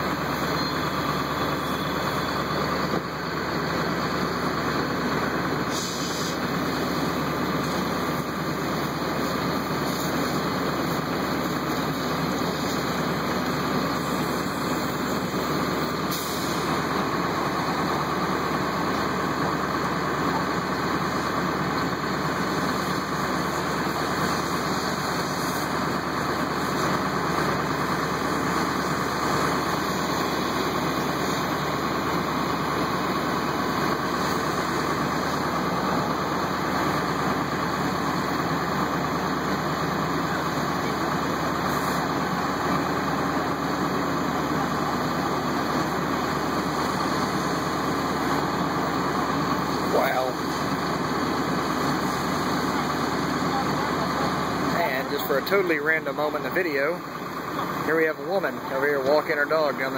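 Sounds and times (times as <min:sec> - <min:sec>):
fire engine engine running: 0:00.0 - 0:59.9.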